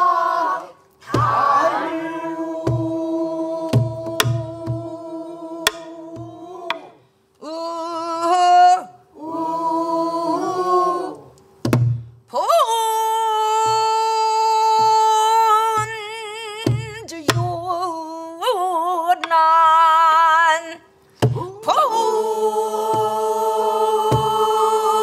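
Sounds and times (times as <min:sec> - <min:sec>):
woman singing with vibrato: 0:00.0 - 0:11.1, 0:12.3 - 0:25.0
barrel drum strokes: 0:02.5 - 0:06.9, 0:22.8 - 0:24.8.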